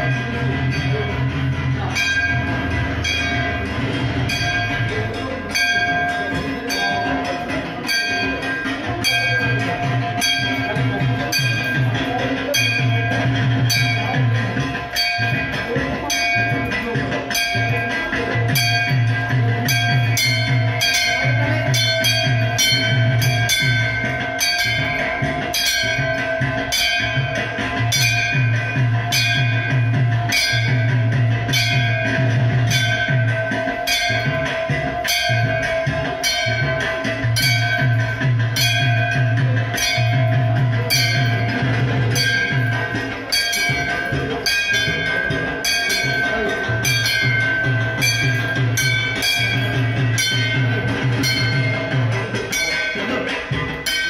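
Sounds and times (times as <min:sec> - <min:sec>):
drum beating: 0:00.0 - 0:54.0
metallic bells ringing: 0:00.0 - 0:54.0.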